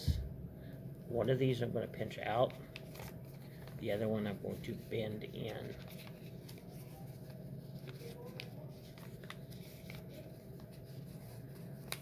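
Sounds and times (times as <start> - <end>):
low room hum: 0.0 - 12.0
paper crinkling: 2.4 - 12.0.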